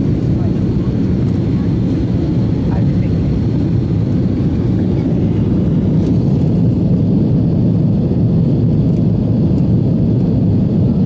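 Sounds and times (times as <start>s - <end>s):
jet engines rumbling: 0.0s - 11.0s.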